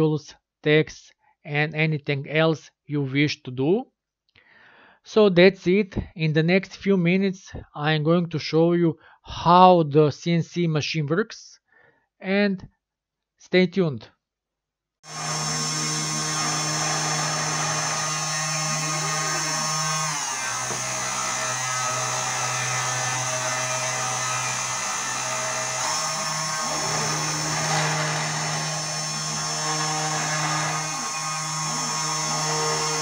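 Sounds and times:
engraver spindle motor whine: 0:15.1 - 0:33.0
low machine hum: 0:15.1 - 0:33.0.

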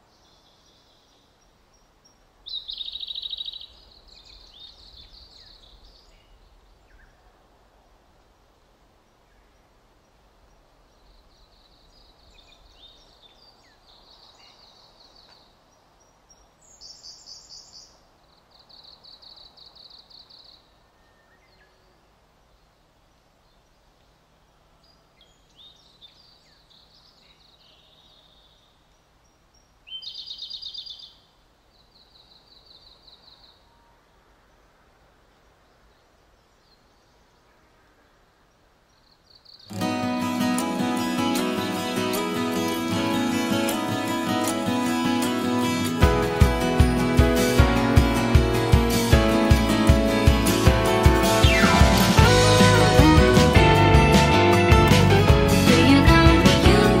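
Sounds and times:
songbirds singing trills: 0:00.0 - 0:07.3, 0:09.1 - 0:22.7, 0:23.4 - 0:34.0, 0:35.5 - 0:39.8
faint steady hiss: 0:00.0 - 0:57.0.

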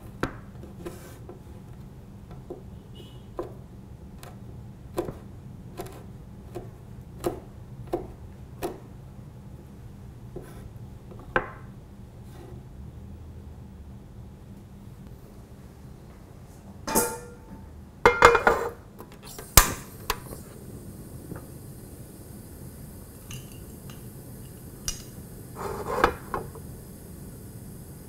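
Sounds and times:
frying pan clattering on stove grate: 0:16.9 - 0:18.6.

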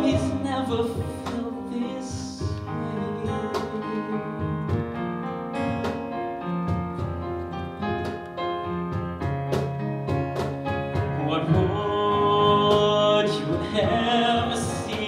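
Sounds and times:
person singing: 0:00.0 - 0:04.9, 0:11.1 - 0:15.0
piano chords ringing: 0:00.0 - 0:15.0.

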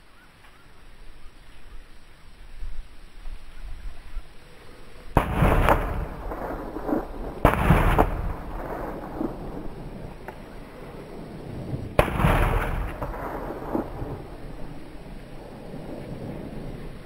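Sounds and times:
gunshots with rolling echo: 0:05.2 - 0:15.0.

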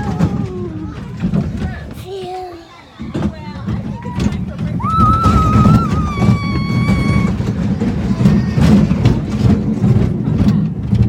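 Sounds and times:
roller coaster train clattering: 0:00.0 - 0:11.0
child screaming: 0:04.8 - 0:07.5.

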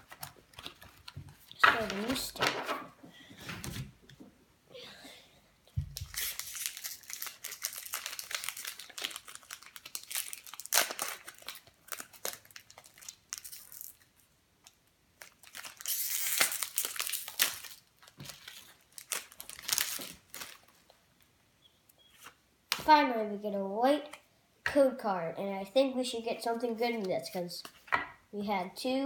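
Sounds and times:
foil wrapper crinkling: 0:05.9 - 0:20.9
foil pack torn open by hand: 0:06.0 - 0:14.0, 0:15.2 - 0:20.6.

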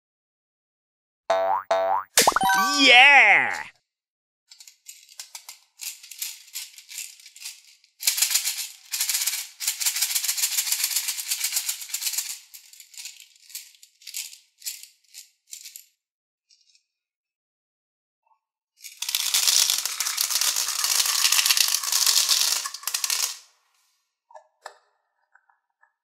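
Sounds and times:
beads rattling in plastic bottle: 0:05.8 - 0:15.0, 0:18.9 - 0:23.4.

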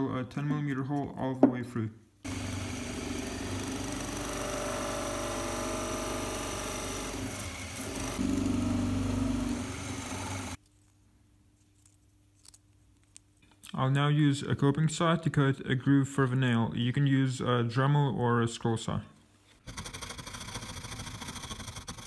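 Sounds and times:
drill press boring into wood: 0:02.3 - 0:10.6.

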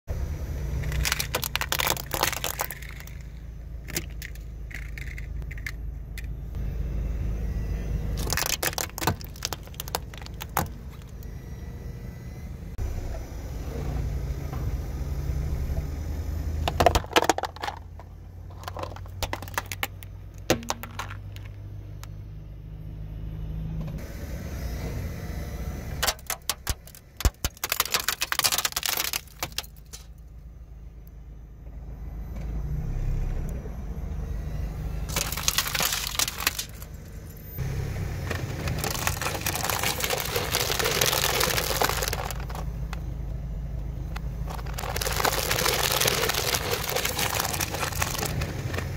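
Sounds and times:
car engine running: 0:00.1 - 0:48.9
plastic cracking under tyre: 0:00.8 - 0:05.8, 0:08.2 - 0:11.3, 0:16.6 - 0:21.6, 0:26.0 - 0:30.1, 0:35.1 - 0:37.0, 0:38.2 - 0:43.1, 0:44.1 - 0:48.9.

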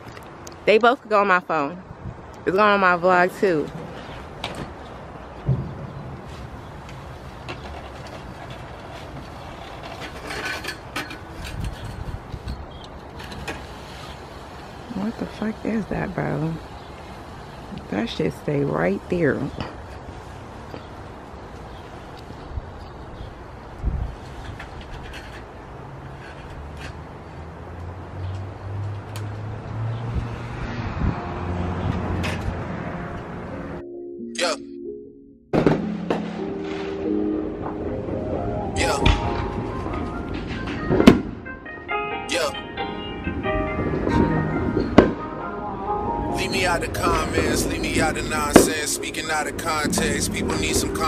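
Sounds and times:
wind buffeting microphone: 0:01.8 - 0:02.4, 0:11.2 - 0:13.2, 0:22.3 - 0:25.0, 0:30.0 - 0:32.8
metal frame scraping over grass: 0:05.9 - 0:14.3
music with held notes: 0:36.0 - 0:47.6.

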